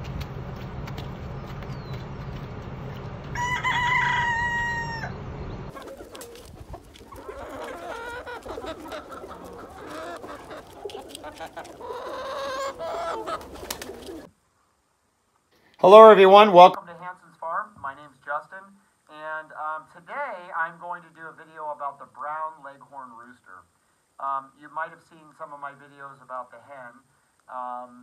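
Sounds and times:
chickens clucking: 0.9 - 14.3
rooster crowing: 3.3 - 5.2, 7.1 - 14.2
wind noise: 5.6 - 11.7.

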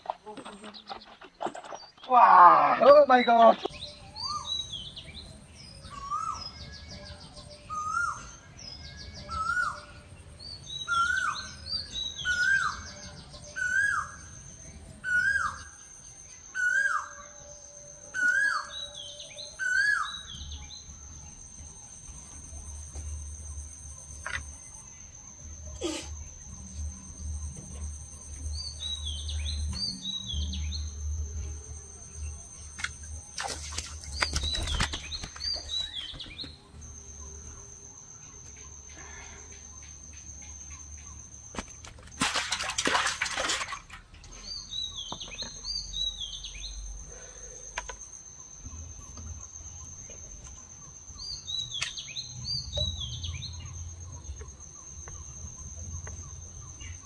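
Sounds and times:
bird chirping: 0.0 - 41.8, 44.2 - 57.0
high-pitched insect whine: 5.9 - 42.1.

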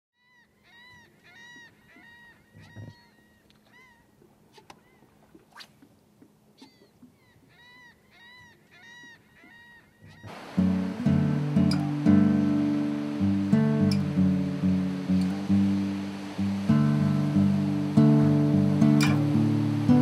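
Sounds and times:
faint bird calls: 0.2 - 15.1.

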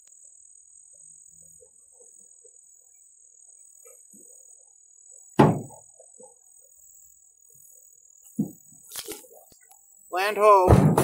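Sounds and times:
canoe hull thunk: 5.4 - 5.8, 10.5 - 11.0.

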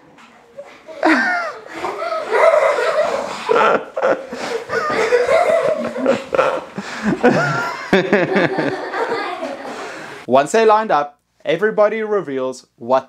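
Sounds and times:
children giggling and laughing: 0.6 - 10.8.

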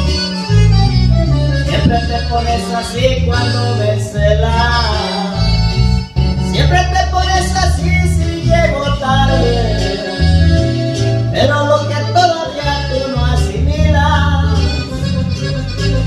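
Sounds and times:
instrumental backing track: 0.0 - 16.0
stepping bass line: 0.0 - 16.0
man singing into a microphone: 1.6 - 5.8, 6.4 - 15.0.

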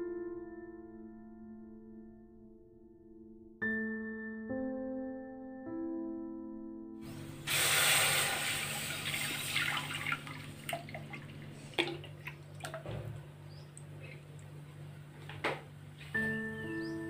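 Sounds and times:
thick pulp splashing and pouring: 7.4 - 13.0
gurgles and small drips: 7.5 - 14.9.

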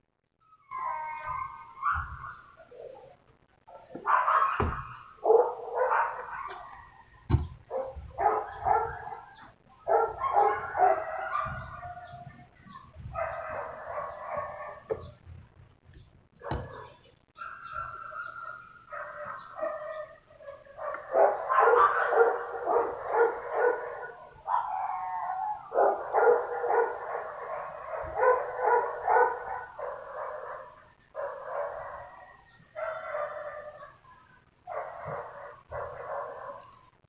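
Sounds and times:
dog yapping: 3.9 - 6.9, 20.8 - 32.1.

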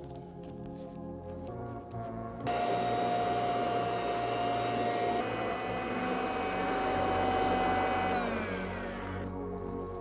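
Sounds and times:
electric cloth cutter whining: 2.5 - 9.4.

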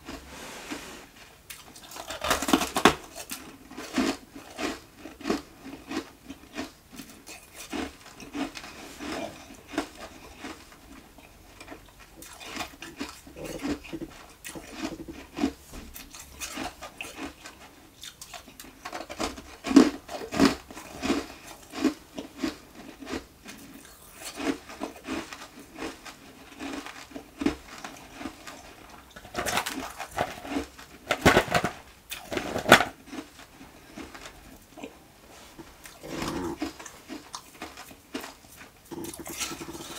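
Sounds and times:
ice crunching when chewed: 1.5 - 39.9.

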